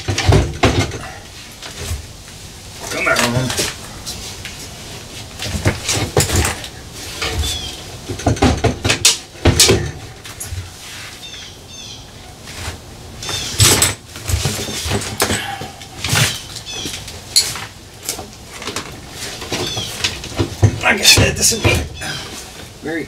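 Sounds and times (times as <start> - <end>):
knocks and rattles of metal fittings: 0.0 - 2.1, 5.4 - 10.7, 13.4 - 22.7.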